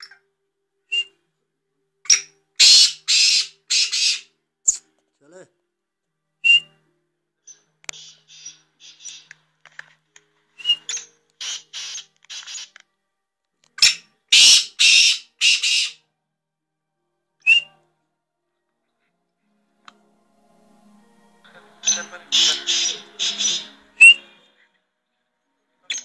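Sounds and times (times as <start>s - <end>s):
bird sharp whistled notes: 0.9s - 1.2s, 6.4s - 6.8s, 7.5s - 9.3s, 17.4s - 17.8s, 21.8s - 24.3s
bird harsh grating calls: 2.1s - 4.8s, 7.9s - 9.3s, 10.6s - 12.8s, 13.8s - 16.0s, 21.8s - 24.2s.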